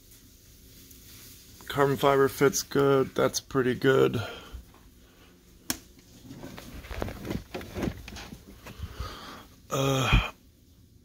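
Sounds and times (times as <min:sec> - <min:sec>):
man humming: 0:09.7 - 0:10.4.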